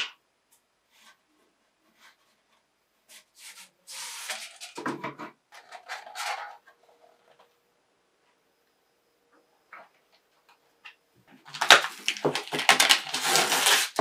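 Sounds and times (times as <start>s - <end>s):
paper rustling and crinkling: 2.0s - 4.9s, 11.4s - 14.0s.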